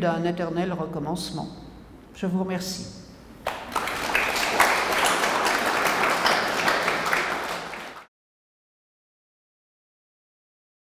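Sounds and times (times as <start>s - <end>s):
audience applauding: 3.5s - 8.1s.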